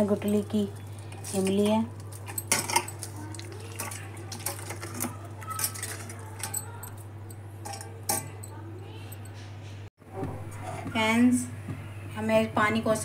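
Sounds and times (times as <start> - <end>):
wet squeezing sounds: 0.3 - 7.0.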